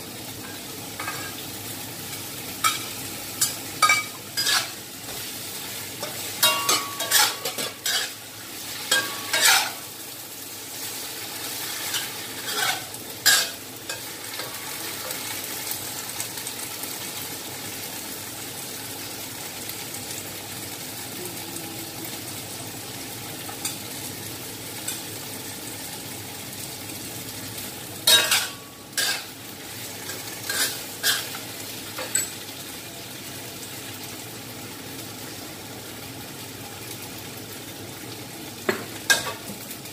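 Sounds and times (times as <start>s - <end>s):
vegetables sizzling in a wok: 0.0s - 39.9s
spatula scraping a wok: 4.4s - 5.4s, 6.0s - 9.9s, 11.4s - 15.2s, 28.1s - 29.4s, 30.0s - 31.5s.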